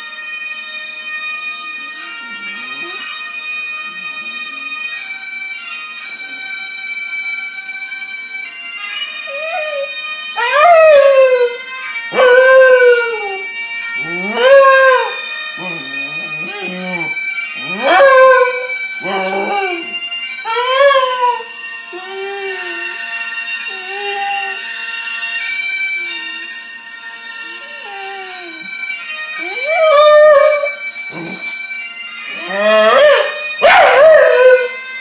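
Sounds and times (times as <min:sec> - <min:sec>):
bagpipe music from phone speaker: 0:00.0 - 0:35.0
dog howling: 0:02.0 - 0:03.1, 0:09.3 - 0:23.0, 0:27.5 - 0:28.7, 0:29.4 - 0:31.5, 0:32.3 - 0:34.8.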